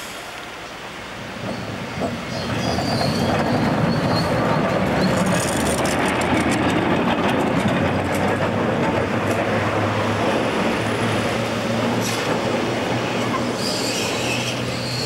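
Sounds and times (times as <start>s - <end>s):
tram wheels rumbling on rails: 0.0s - 15.0s
sharp clicks from wheels and track: 1.4s - 9.7s.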